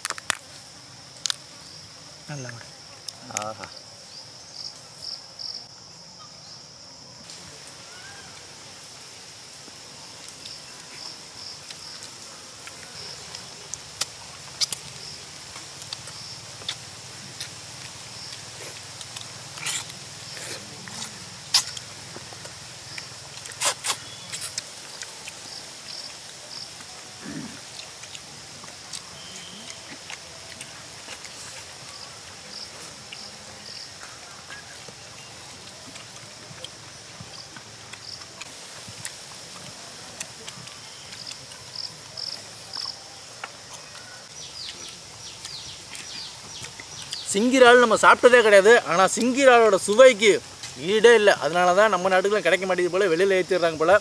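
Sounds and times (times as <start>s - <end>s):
lobster shell cracking: 0.0s - 0.5s
insects chirping: 0.0s - 54.0s
steady background hiss: 0.0s - 54.0s.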